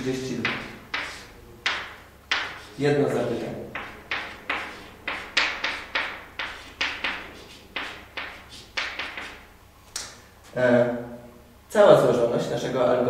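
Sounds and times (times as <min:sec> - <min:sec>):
chalk tapping and scratching: 0:00.4 - 0:09.5.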